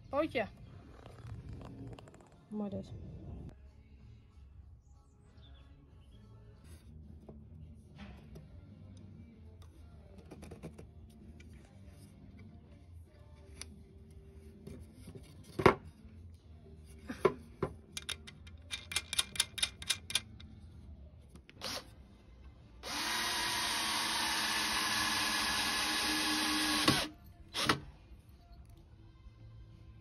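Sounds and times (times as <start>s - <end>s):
metallic clicks and taps: 17.9s - 20.5s
cordless drill driving screw: 21.6s - 21.9s, 22.8s - 27.9s.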